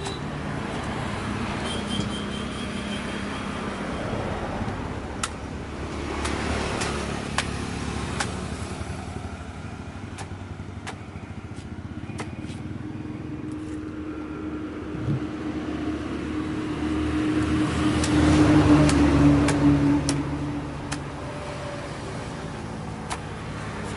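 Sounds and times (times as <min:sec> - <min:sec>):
road traffic: 0:00.0 - 0:23.9
knife chopping fruit husk: 0:17.9 - 0:20.2.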